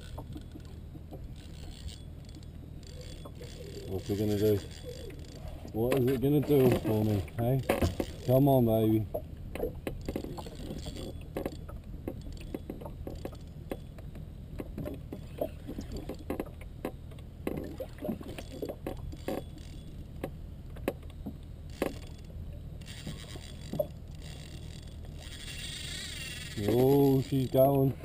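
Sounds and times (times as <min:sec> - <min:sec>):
fishing reel clicks and knocks: 0:00.0 - 0:08.5, 0:21.7 - 0:27.8
low steady hum: 0:00.0 - 0:28.0.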